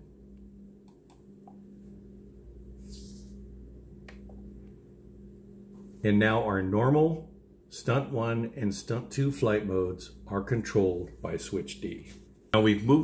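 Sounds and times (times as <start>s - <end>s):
low hum: 0.0s - 13.0s
soft hiss: 2.6s - 4.8s.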